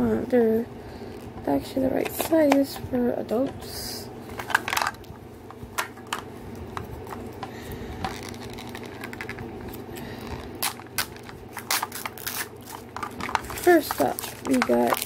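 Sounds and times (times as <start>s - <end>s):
steady low hum: 0.0s - 15.0s
plastic crinkles taps and clicks: 10.6s - 15.0s.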